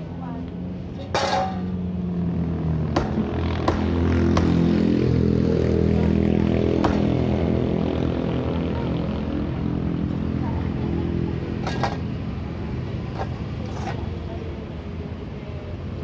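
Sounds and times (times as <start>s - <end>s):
cleaver chopping on wooden block: 3.0s - 4.6s.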